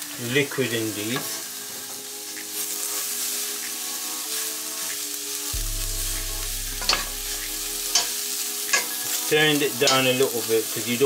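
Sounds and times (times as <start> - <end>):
vegetables sizzling in a frying pan: 0.0 - 11.0
sharp knock: 5.6 - 8.1.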